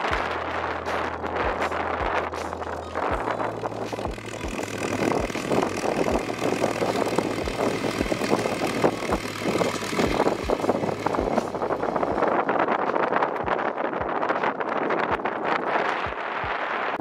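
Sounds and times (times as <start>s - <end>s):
tractor diesel engine running: 0.0s - 13.2s
roller rattling clatter: 2.6s - 12.3s.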